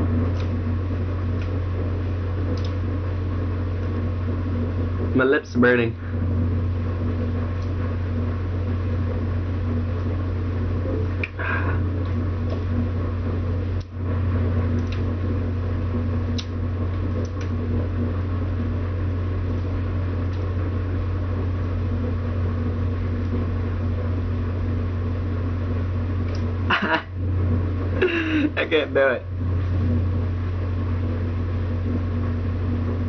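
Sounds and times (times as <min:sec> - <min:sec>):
low machine hum: 0:00.0 - 0:33.0
faint clicks: 0:02.5 - 0:02.8, 0:14.7 - 0:15.1, 0:16.3 - 0:16.6, 0:17.2 - 0:17.6.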